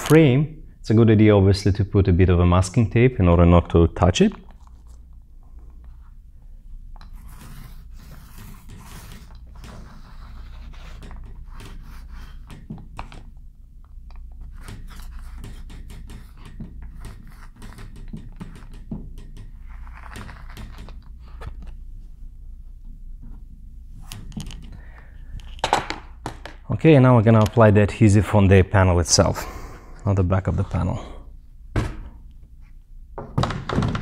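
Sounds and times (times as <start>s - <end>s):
paint roller rolling sticky: 7.0s - 13.3s, 14.4s - 21.8s.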